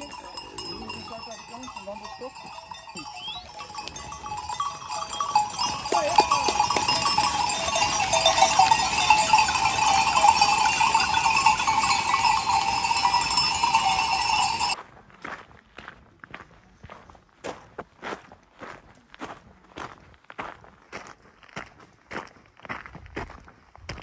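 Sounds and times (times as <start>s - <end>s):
sheep bells clanking: 0.0s - 14.8s.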